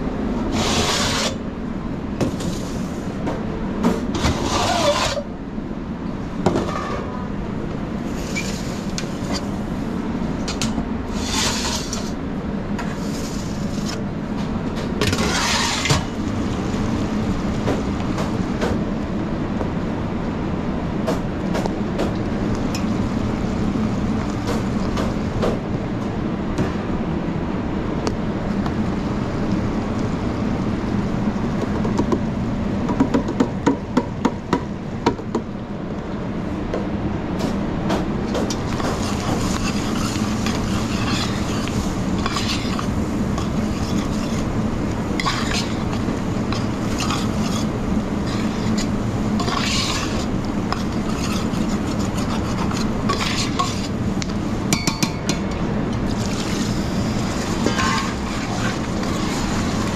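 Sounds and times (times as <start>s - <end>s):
steady background hum: 0.0s - 59.9s
utensils scraping in a pan: 4.2s - 5.3s, 8.1s - 9.5s, 11.1s - 12.2s, 13.0s - 14.0s, 15.1s - 16.0s, 38.5s - 54.0s, 56.0s - 59.9s.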